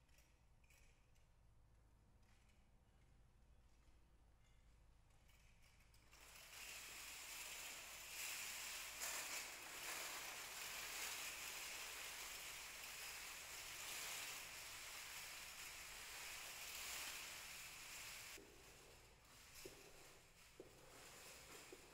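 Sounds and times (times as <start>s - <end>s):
metal jingle cones rattling: 5.1s - 21.9s.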